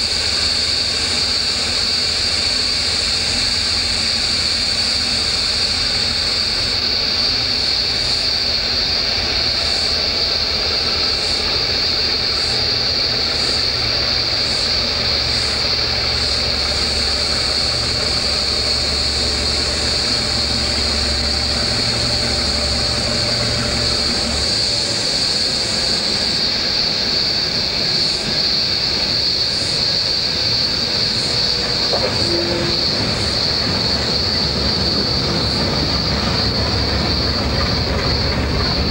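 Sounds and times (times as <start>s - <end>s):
cicadas droning: 0.0s - 38.9s
diesel locomotive rumble: 0.0s - 38.9s.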